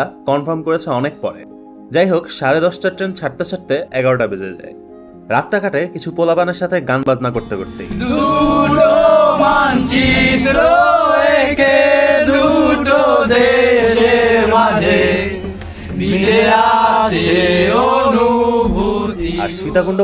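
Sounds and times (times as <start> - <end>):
men singing in chorus: 7.9 - 20.0.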